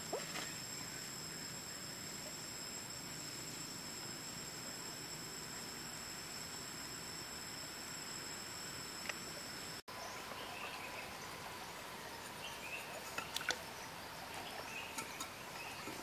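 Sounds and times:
insects buzzing: 0.0s - 16.0s.

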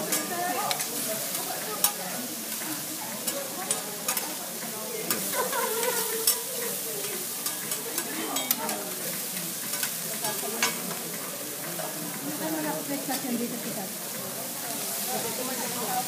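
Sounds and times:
steak sizzling on a griddle: 0.0s - 16.0s
metal spatula scraping griddle: 5.1s - 8.8s.

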